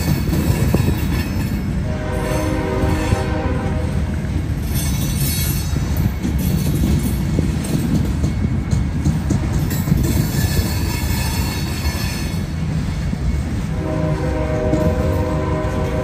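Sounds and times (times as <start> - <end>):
wheels clicking over rail joints: 0.0 - 13.8
train rumbling past: 0.0 - 16.0
train horn: 1.7 - 4.2, 13.6 - 16.0.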